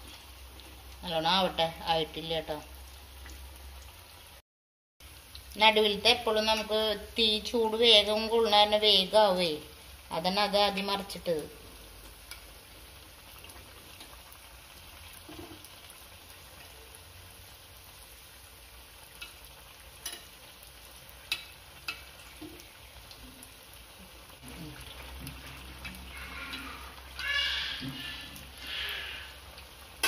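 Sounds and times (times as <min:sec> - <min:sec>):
batter sizzling in hot oil: 0:00.0 - 0:04.4, 0:05.0 - 0:30.0
metal spoon clicking on pan: 0:20.0 - 0:20.3, 0:21.3 - 0:22.1.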